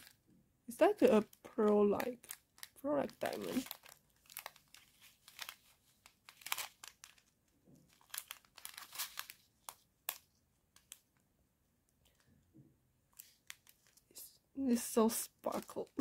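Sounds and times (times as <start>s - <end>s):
plastic packets crinkling: 0.8s - 11.1s, 13.1s - 14.1s, 15.0s - 16.0s.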